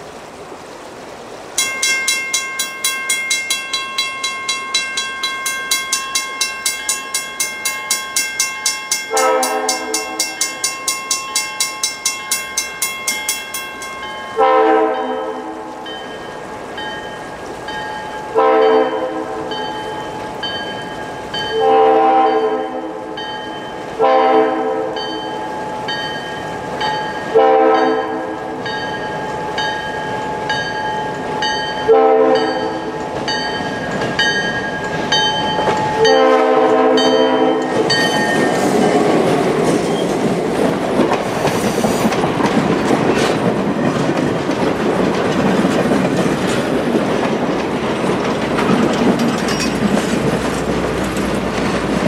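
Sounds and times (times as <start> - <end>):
train wheels rumbling and clicking: 1.6 - 14.4, 28.5 - 52.0
crossing bell ringing: 1.6 - 40.4, 48.8 - 50.6
locomotive air horn blasts: 9.1 - 10.4, 14.4 - 15.8, 18.4 - 19.5, 21.5 - 23.2, 24.0 - 25.2, 27.3 - 28.6, 31.8 - 32.9, 36.0 - 37.8.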